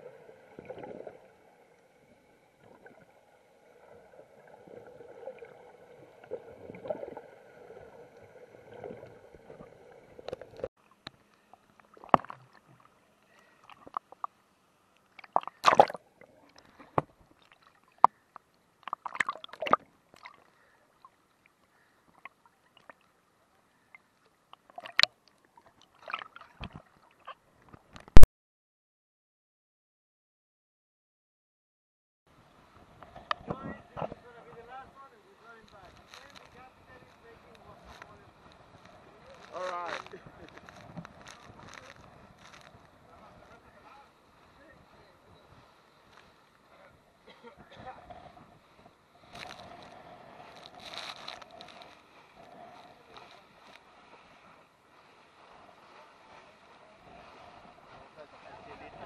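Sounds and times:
low underwater hum: 0:00.0 - 0:27.8, 0:32.3 - 0:59.0
water splashing against housing: 0:15.2 - 0:16.0.

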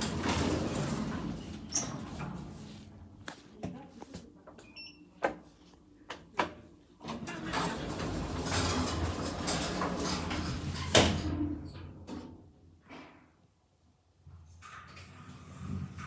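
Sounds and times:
elevator doors sliding rumble: 0:00.0 - 0:02.7, 0:07.0 - 0:12.3.

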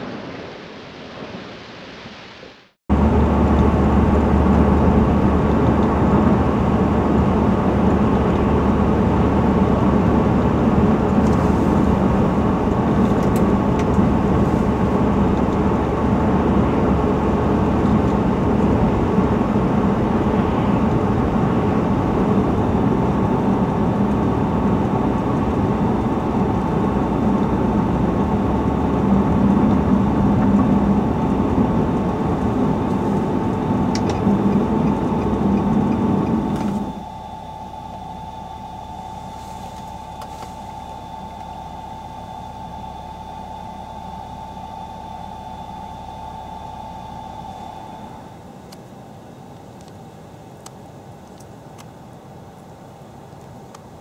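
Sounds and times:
car engine hum: 0:02.9 - 0:54.0.

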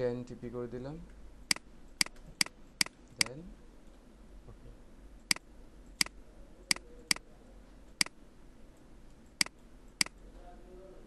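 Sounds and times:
computer mouse clicking: 0:01.5 - 0:04.0, 0:05.3 - 0:07.2, 0:09.1 - 0:10.2.

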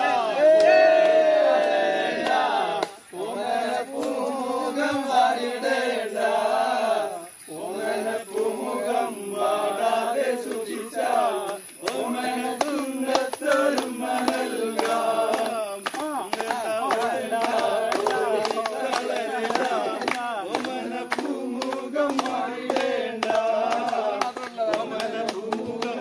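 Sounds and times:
men singing together: 0:00.0 - 0:26.0.

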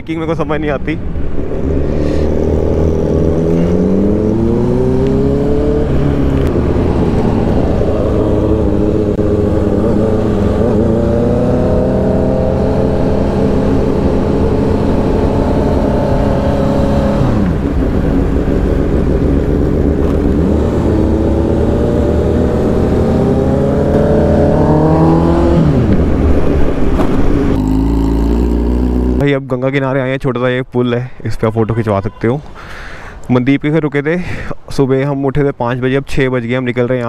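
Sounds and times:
motorcycle engines accelerating: 0:01.3 - 0:29.2.

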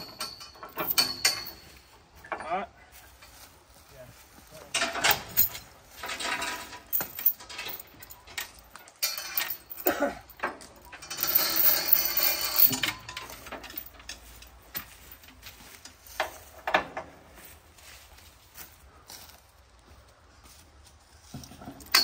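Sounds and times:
steel chain clinking and rattling: 0:00.0 - 0:03.5, 0:04.4 - 0:17.2, 0:21.3 - 0:22.0.

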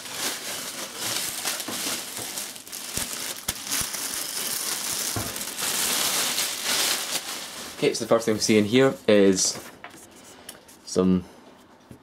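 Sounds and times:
plastic bag crinkling: 0:00.0 - 0:08.9.

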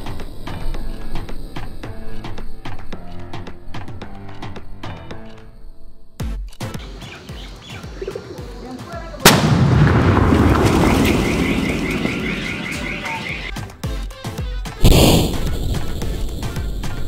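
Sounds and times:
background music with beat: 0:06.2 - 0:09.2, 0:12.6 - 0:17.0
firecracker boom and rumble: 0:09.2 - 0:13.6, 0:14.8 - 0:17.0.

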